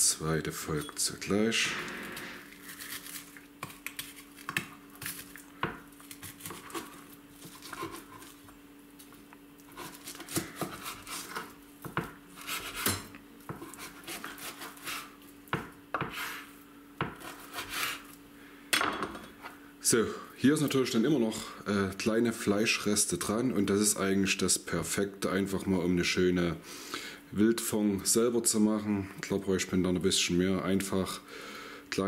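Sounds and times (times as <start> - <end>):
knife scraping along bone: 9.7 - 11.5, 12.4 - 13.0, 13.6 - 15.1.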